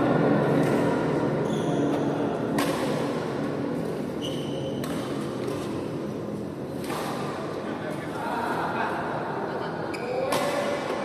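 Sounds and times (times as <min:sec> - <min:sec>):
indoor hall background din: 0:00.0 - 0:11.0
brief high squeak: 0:04.2 - 0:04.8.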